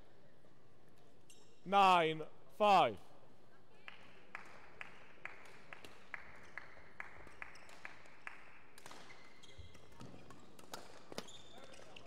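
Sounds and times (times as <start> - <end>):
sharp claps echoing in hall: 3.7 - 12.0.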